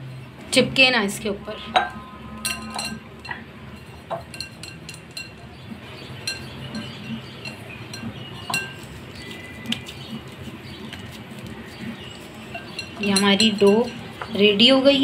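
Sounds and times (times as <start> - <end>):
hands handling dough in bowl: 6.3 - 14.3.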